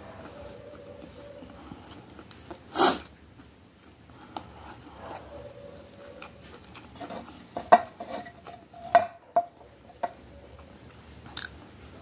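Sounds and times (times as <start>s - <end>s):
faint steady hum: 0.0s - 12.0s
sharp burst of breath: 2.7s - 3.1s.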